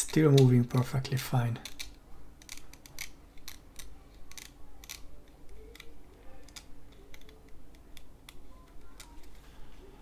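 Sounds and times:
small plastic clicks: 1.6 - 9.4.

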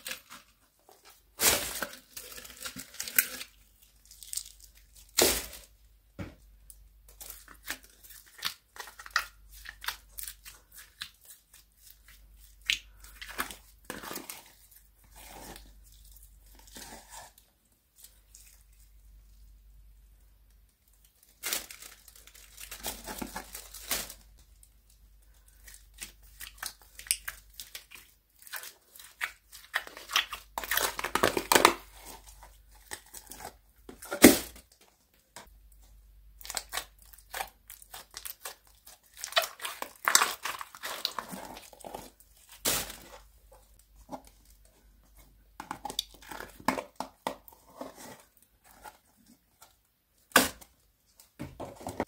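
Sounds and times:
plastic bag and tubs crinkling: 0.0 - 19.5, 20.7 - 52.0
slime stretching and tearing: 36.4 - 43.2.

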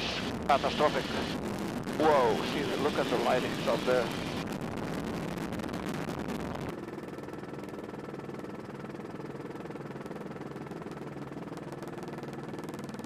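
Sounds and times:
loud rushing noise: 0.0 - 6.7
helicopter engine and rotor drone: 0.0 - 13.0.

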